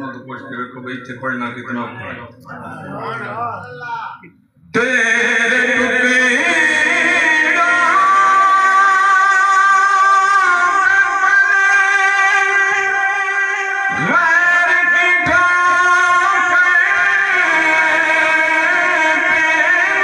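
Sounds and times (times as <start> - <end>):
man singing devotional poem: 4.6 - 20.0.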